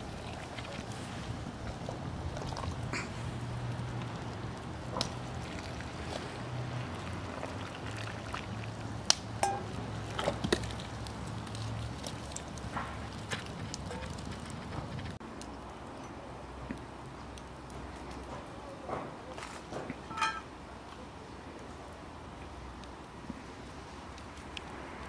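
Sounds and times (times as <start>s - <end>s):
water pouring into glass jars: 5.3s - 12.6s
glass clinks: 9.4s - 9.7s, 20.1s - 20.4s.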